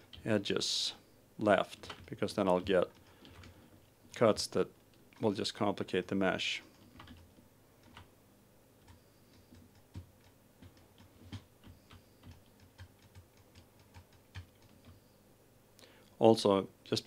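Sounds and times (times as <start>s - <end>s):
computer mouse clicking: 8.8s - 15.0s.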